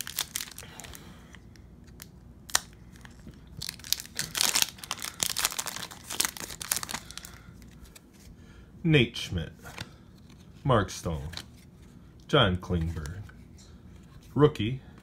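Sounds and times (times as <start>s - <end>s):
foil wrapper crinkling and tearing: 0.0s - 1.0s, 1.9s - 7.7s.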